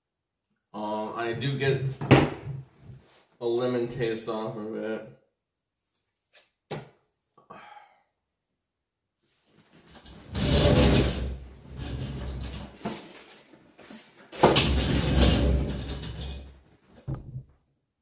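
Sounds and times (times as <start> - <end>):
office chair creaking: 9.9 - 13.0, 14.4 - 16.5.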